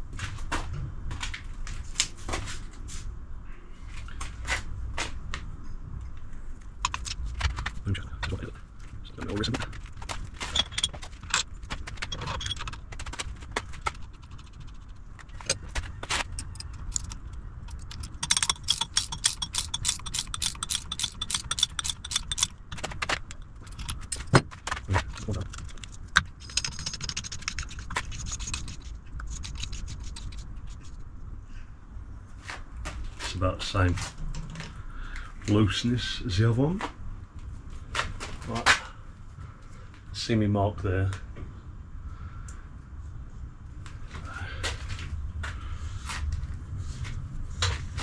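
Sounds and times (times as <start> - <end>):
rapid even clicking: 9.2 - 31.0
metal tools clicking and clinking: 9.3 - 30.4.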